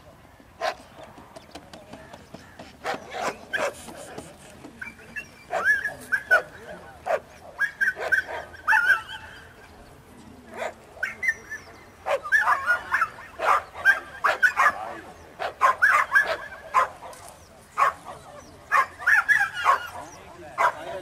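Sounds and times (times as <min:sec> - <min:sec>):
dogs yelping and barking: 0:04.8 - 0:09.6, 0:10.6 - 0:17.2, 0:17.8 - 0:21.0.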